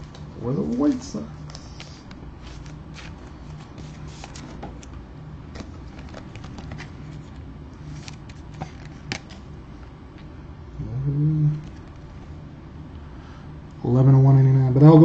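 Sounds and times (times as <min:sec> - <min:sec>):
steady low hum: 0:00.0 - 0:15.0
card sliding into plastic sleeve: 0:01.8 - 0:04.9, 0:05.5 - 0:09.4.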